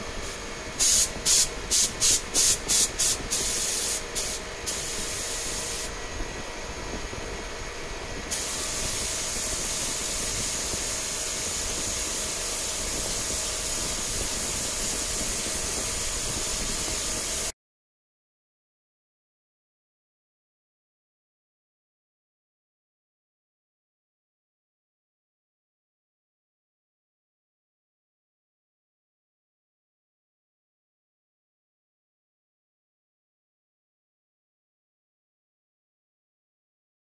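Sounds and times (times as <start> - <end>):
air spray gun hissing: 0.2 - 6.0, 8.3 - 17.5.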